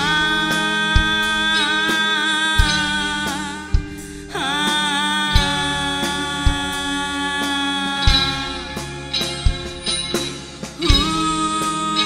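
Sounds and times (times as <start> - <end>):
kick drum beats: 3.7 - 4.3, 9.5 - 9.9.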